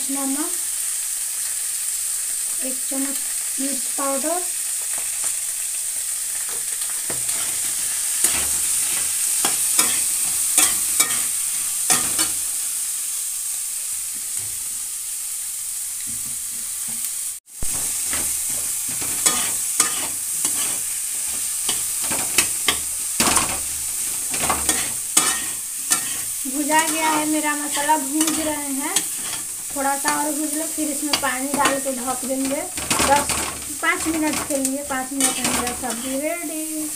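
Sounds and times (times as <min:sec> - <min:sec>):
vegetables sizzling in a pan: 0:00.0 - 0:36.9
metal spatula scraping a pan: 0:07.1 - 0:12.4, 0:17.7 - 0:36.4.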